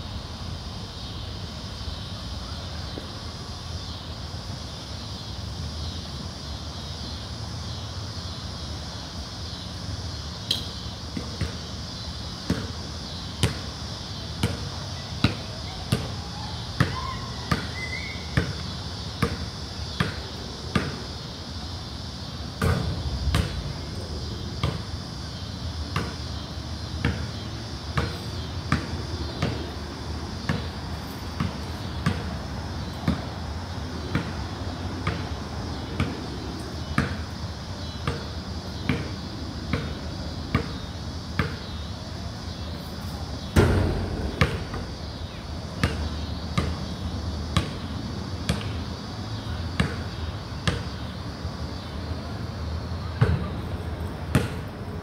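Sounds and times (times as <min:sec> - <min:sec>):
steady high hiss: 0:00.0 - 0:49.4
basketball bouncing on concrete: 0:11.2 - 0:11.7, 0:12.5 - 0:12.8, 0:13.4 - 0:13.7, 0:16.8 - 0:17.8, 0:19.2 - 0:21.0, 0:22.6 - 0:23.8, 0:24.6 - 0:24.9, 0:26.0 - 0:26.2, 0:41.4 - 0:41.6, 0:43.5 - 0:46.9, 0:54.3 - 0:54.6.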